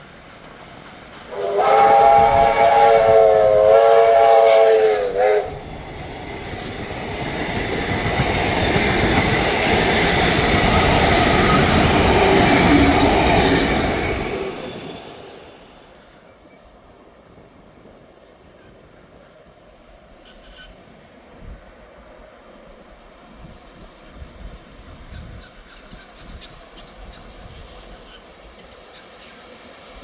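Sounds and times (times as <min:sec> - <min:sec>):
train passing rumble: 0:00.0 - 0:30.0
steam locomotive whistle: 0:01.3 - 0:05.8.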